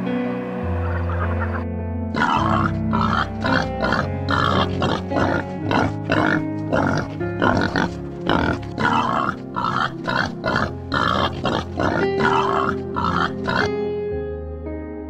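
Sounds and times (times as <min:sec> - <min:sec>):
background music: 0:00.0 - 0:15.0
boar grunting: 0:02.2 - 0:13.8.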